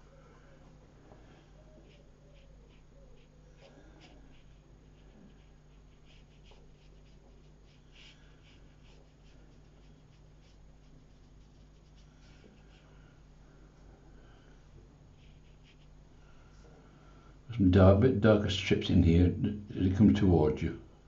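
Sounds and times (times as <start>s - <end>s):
low steady hum: 0.0s - 21.0s
brush scratching on paper: 1.4s - 13.0s, 15.1s - 16.0s.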